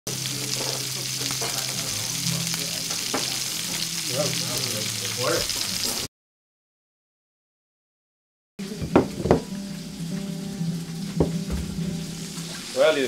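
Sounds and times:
bacon sizzling in a pan: 0.1 - 6.1, 8.6 - 13.0
pan knocks: 8.8 - 9.5, 11.1 - 12.0.

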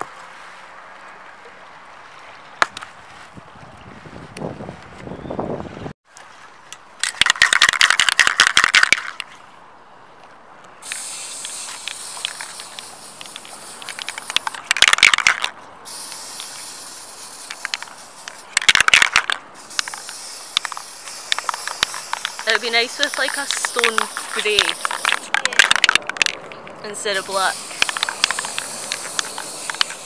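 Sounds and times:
spray can ball rattling: 7.2 - 9.2, 10.8 - 26.4, 27.0 - 30.0
spray paint hissing: 10.8 - 26.0, 27.0 - 30.0.

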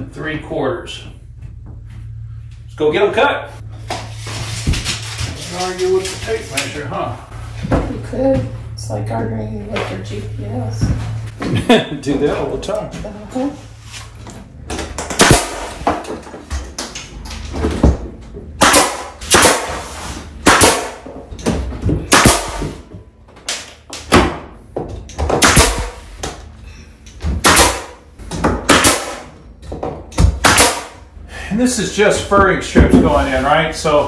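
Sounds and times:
nail gun firing: 15.1 - 15.8, 18.6 - 19.8, 20.4 - 21.0, 22.1 - 22.8, 25.4 - 26.0, 27.4 - 28.0, 28.6 - 29.3, 30.2 - 31.0.

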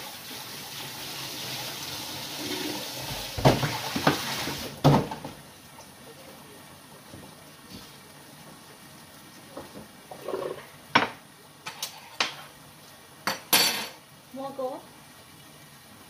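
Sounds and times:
metal spoon clinking cookware: 13.3 - 14.0.

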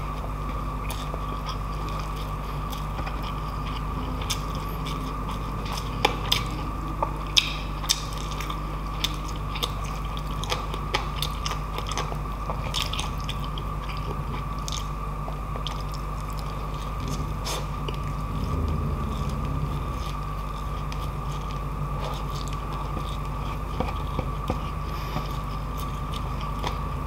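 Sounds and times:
steady low hum: 0.0 - 27.0
person chewing: 0.8 - 15.0.

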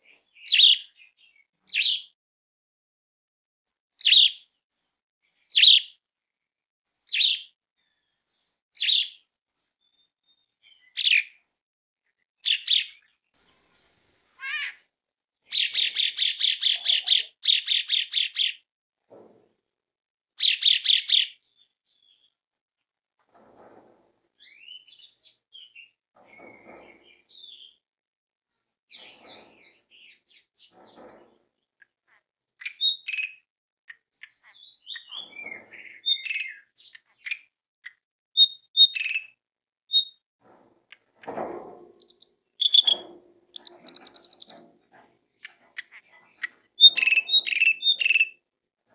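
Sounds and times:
starling whistles and squeaks: 32.6 - 33.4, 34.2 - 37.5, 38.4 - 40.2, 42.0 - 44.7, 46.7 - 48.4
starling rattling call: 42.0 - 43.0, 43.6 - 44.8, 45.8 - 48.3.

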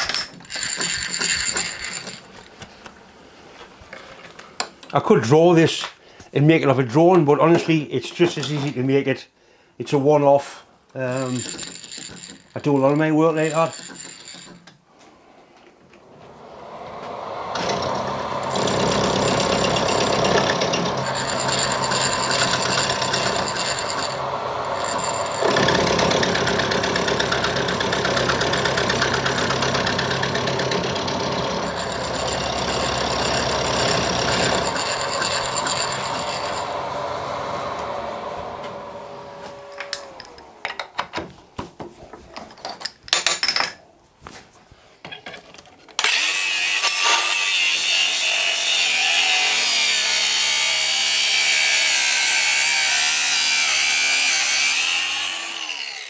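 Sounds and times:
machine winding down whine: 15.9 - 41.0, 46.1 - 56.0
angle grinder: 16.0 - 40.8, 46.0 - 56.0
milling machine cutting metal: 16.1 - 40.9, 46.0 - 56.0.

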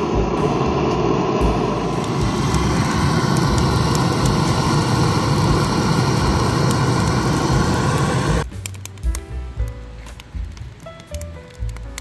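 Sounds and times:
deep rumble: 0.0 - 8.5
loud steady rushing noise: 0.0 - 8.5.

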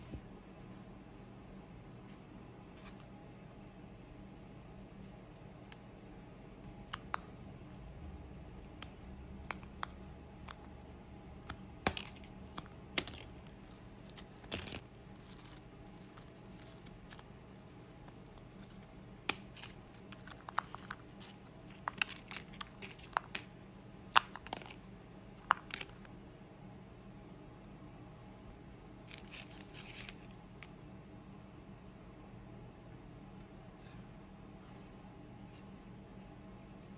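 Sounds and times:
frozen juice cracking and popping: 6.7 - 7.4, 8.5 - 17.3.

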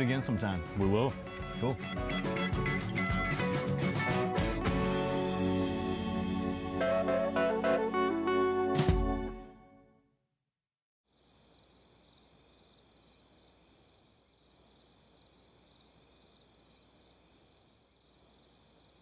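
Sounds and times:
crickets chirping: 11.1 - 19.0.

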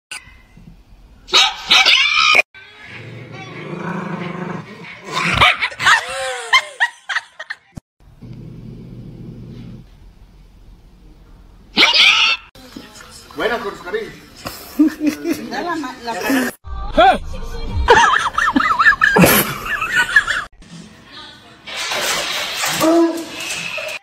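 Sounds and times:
small dogs barking: 1.3 - 2.4, 4.8 - 6.0
dogs growling: 2.8 - 5.4, 8.2 - 9.9.

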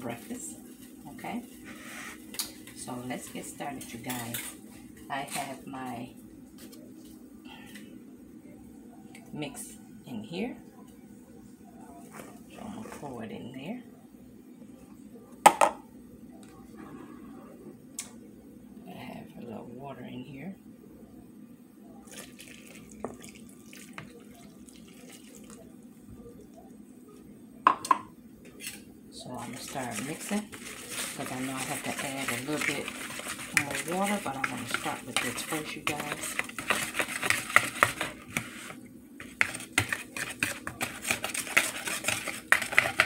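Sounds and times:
water trickling into a bowl: 22.1 - 25.8
whisk clicking against bowl: 29.9 - 38.5, 39.2 - 43.0.

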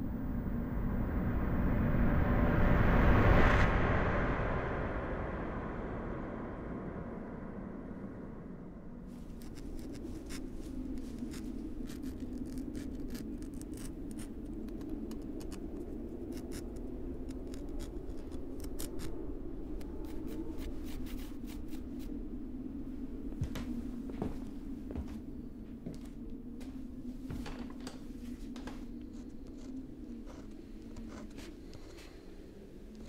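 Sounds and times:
steady low hum: 0.0 - 33.0
light clicks and scratches: 9.1 - 22.1, 27.4 - 33.0.

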